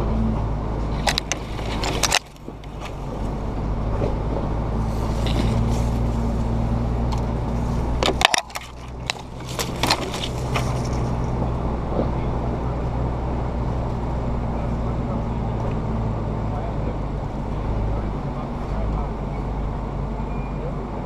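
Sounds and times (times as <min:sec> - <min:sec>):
branches scraping vehicle: 0:00.0 - 0:21.0
off-road vehicle engine running: 0:00.0 - 0:21.0
knocks and rattles: 0:00.9 - 0:03.2, 0:07.9 - 0:11.4.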